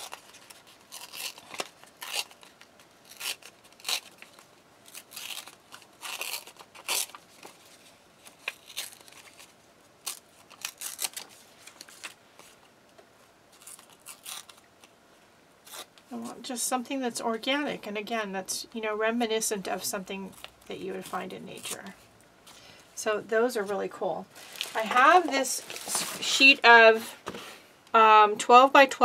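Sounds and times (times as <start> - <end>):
paper tearing: 0.0 - 12.6, 13.5 - 14.9, 15.6 - 16.3.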